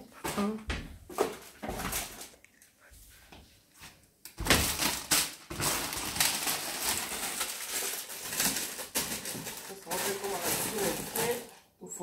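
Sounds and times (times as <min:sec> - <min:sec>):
plastic packages rustling: 0:04.4 - 0:11.6.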